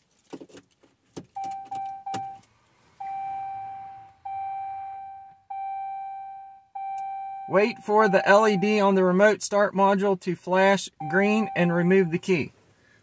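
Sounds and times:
keys jingling in ignition: 0:00.0 - 0:02.5
dashboard warning chime: 0:01.4 - 0:02.4, 0:03.0 - 0:08.9, 0:10.9 - 0:12.4.

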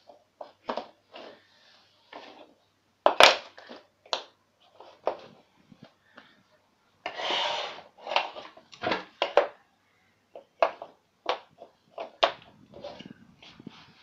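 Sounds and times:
wooden track scraping on floor: 0:07.1 - 0:08.4.

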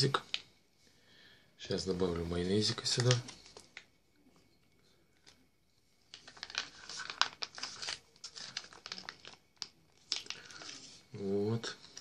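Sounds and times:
plastic pouch crinkling: 0:02.7 - 0:03.9, 0:06.0 - 0:11.0.

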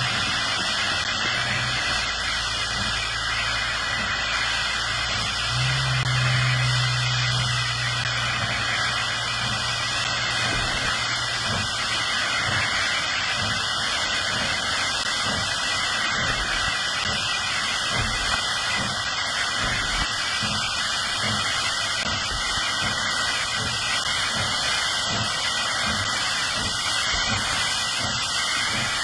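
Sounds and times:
low steady hum: 0:00.0 - 0:12.9
steam hissing: 0:00.0 - 0:29.0
steam locomotive exhaust chuffs: 0:00.0 - 0:29.0.

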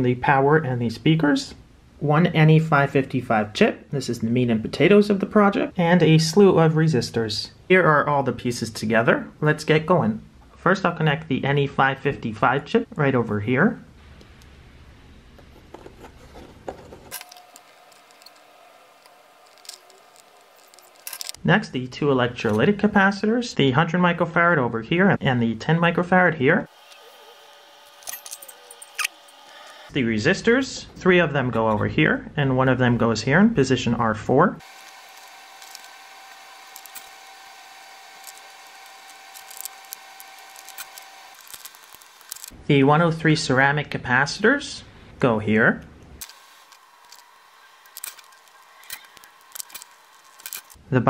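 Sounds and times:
faint steady whine: 0:13.8 - 0:21.5, 0:34.6 - 0:42.8, 0:45.8 - 0:51.0
fingers handling circuit board: 0:15.4 - 0:21.4, 0:34.7 - 0:42.6, 0:46.2 - 0:50.8.

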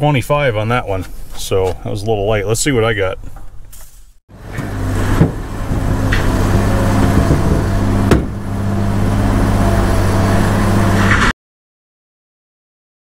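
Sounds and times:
sharp clunks: 0:03.2 - 0:06.4, 0:07.0 - 0:08.4
truck engine running: 0:04.3 - 0:11.3.

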